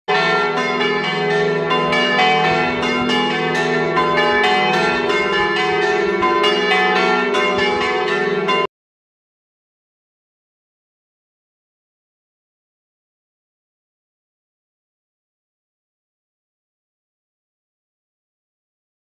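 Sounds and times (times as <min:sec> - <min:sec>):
church bells ringing: 0:00.1 - 0:08.7.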